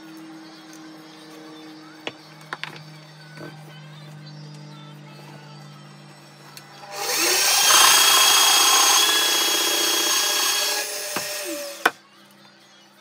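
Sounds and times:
drill motor spinning: 0:06.8 - 0:12.0
drill bit boring into wood: 0:06.9 - 0:11.9.

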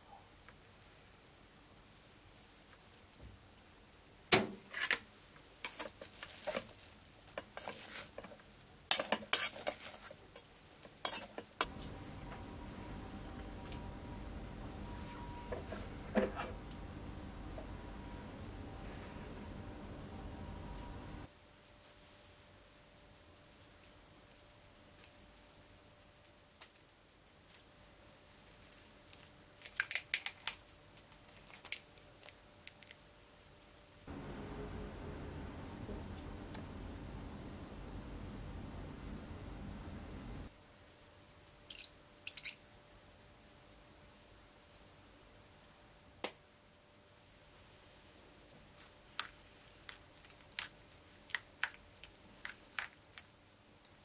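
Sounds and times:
steady low hum: 0:11.6 - 0:21.3, 0:34.1 - 0:40.5.

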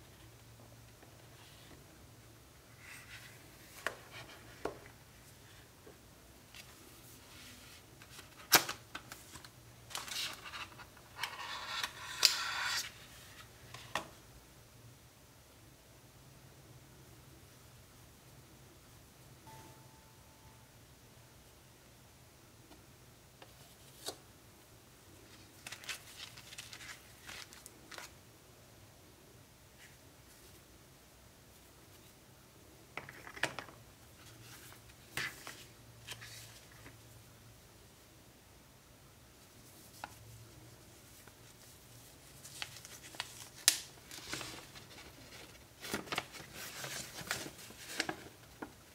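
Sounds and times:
scratchy rustling of packaging: 0:40.9 - 0:48.8.

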